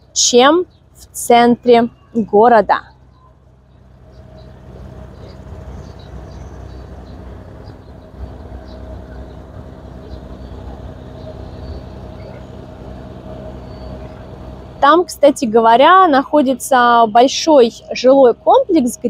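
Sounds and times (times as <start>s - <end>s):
distant city traffic rumble: 0.0s - 19.0s
faint steady hum: 0.0s - 19.0s.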